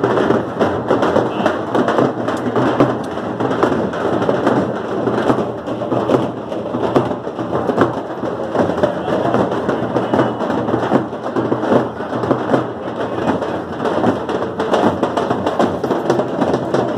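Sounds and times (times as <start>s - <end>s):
large crowd din: 0.0s - 16.9s.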